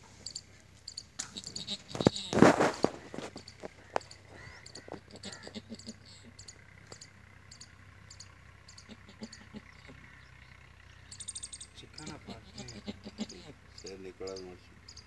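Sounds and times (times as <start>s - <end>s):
high short chirps: 11.0s - 11.8s.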